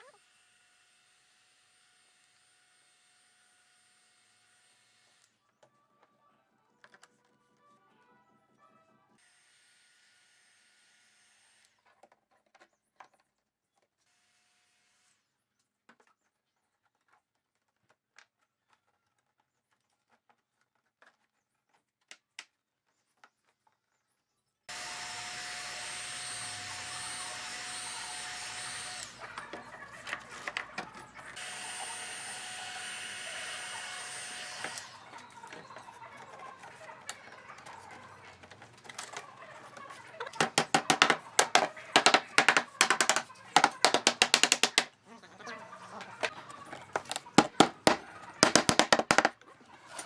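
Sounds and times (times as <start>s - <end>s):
wooden mallet tapping wood: 40.4s - 44.9s.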